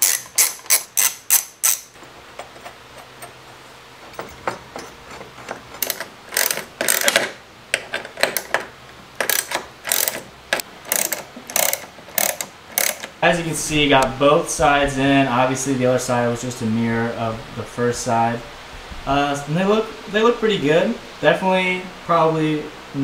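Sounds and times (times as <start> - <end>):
ratchet wrench clicking: 0.0 - 2.0, 5.8 - 7.3, 9.2 - 13.2.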